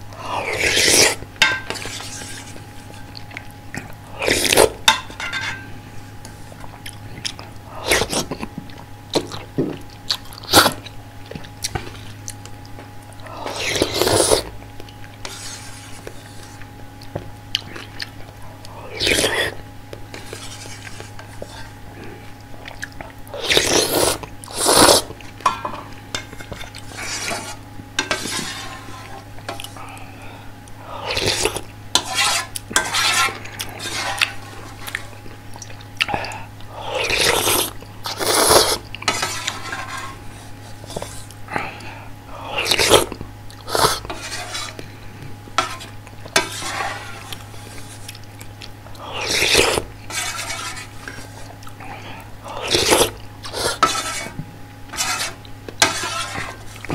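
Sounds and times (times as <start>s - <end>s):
person blowing on hot food: 0.2s - 1.2s, 4.1s - 4.8s, 13.3s - 14.6s, 18.8s - 19.6s, 23.3s - 25.2s, 36.1s - 38.8s, 42.3s - 44.7s, 49.0s - 49.9s, 51.8s - 54.2s
slurping noodles: 0.2s - 1.2s, 4.1s - 4.8s, 7.8s - 8.4s, 13.4s - 14.5s, 18.8s - 19.6s, 23.3s - 25.2s, 31.0s - 35.1s, 36.7s - 40.2s, 42.4s - 44.8s, 49.0s - 51.5s, 52.4s - 54.3s
slurp of broth: 0.4s - 1.2s, 13.5s - 14.5s, 23.4s - 25.2s, 36.9s - 38.8s.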